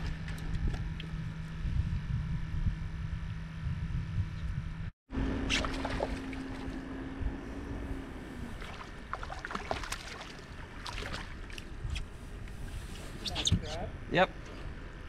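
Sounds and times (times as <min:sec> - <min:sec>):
wind on microphone: 0:00.0 - 0:09.1, 0:10.6 - 0:15.0
steady low hum: 0:00.0 - 0:15.0
water noise around boat: 0:05.1 - 0:15.0.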